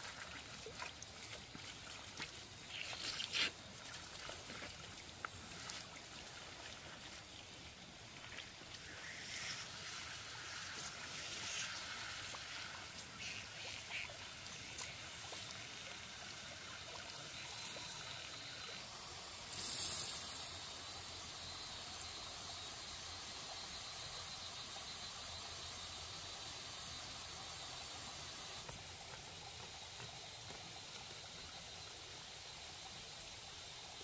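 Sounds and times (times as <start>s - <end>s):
stream water trickling: 0.0s - 34.0s
rustling and scraping of stakes: 2.6s - 3.7s.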